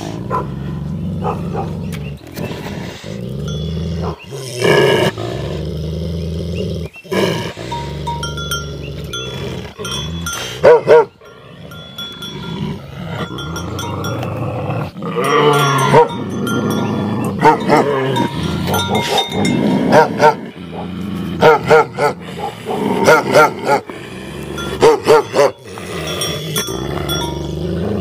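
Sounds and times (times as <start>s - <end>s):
dogs growling: 0.0s - 28.0s
dogs snarling: 0.0s - 28.0s
dogs barking: 0.2s - 1.9s, 4.0s - 4.3s, 9.8s - 12.3s, 15.2s - 23.9s, 24.6s - 27.3s
collar bells clanking: 3.4s - 4.0s, 7.6s - 20.4s, 24.3s - 28.0s.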